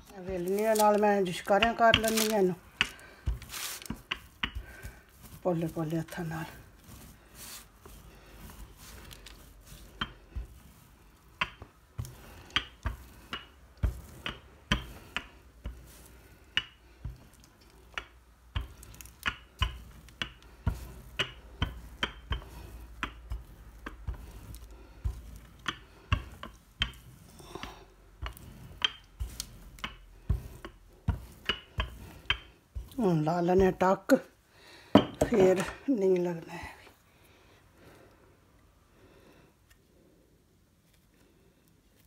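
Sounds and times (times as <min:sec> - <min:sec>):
rolling pin cracking brittle: 0:00.0 - 0:33.0.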